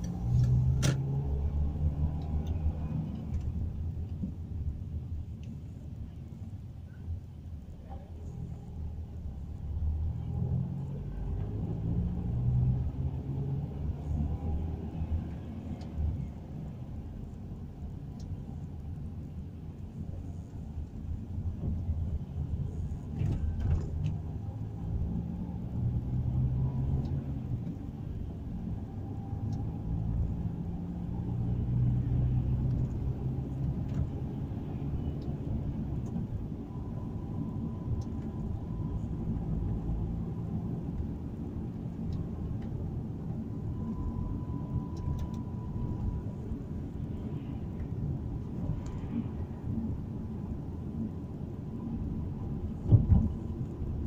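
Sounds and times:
car engine rumble: 0:00.0 - 0:54.0.

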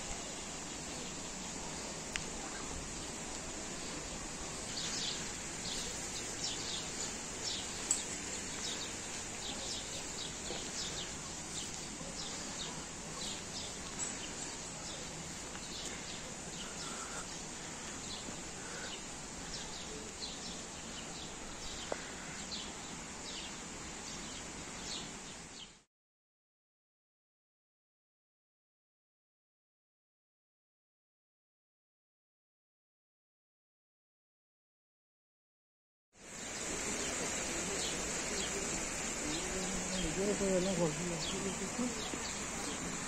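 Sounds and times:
outdoor background hiss: 0:00.0 - 0:25.9, 0:36.2 - 0:43.0
small birds chirping: 0:00.1 - 0:25.8, 0:36.2 - 0:43.0.

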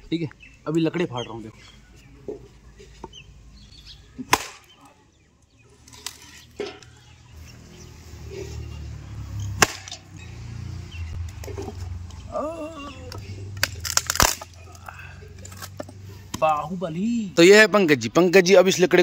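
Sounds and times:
axe chopping wood: 0:04.2 - 0:04.7, 0:09.5 - 0:10.0.

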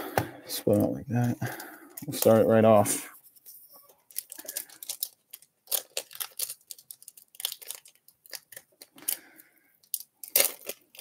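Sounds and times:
foil wrapper crinkling: 0:03.5 - 0:11.0.

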